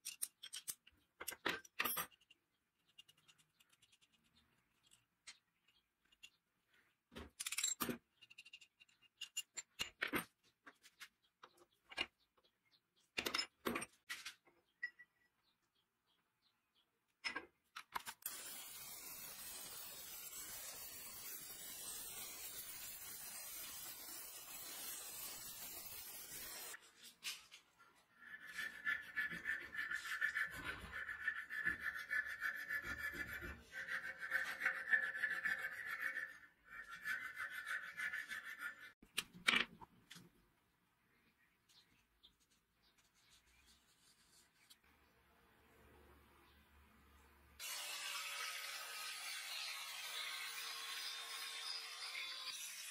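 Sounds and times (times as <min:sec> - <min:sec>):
steady hiss: 0:18.3 - 0:26.8
file rasping on brass: 0:28.2 - 0:39.0.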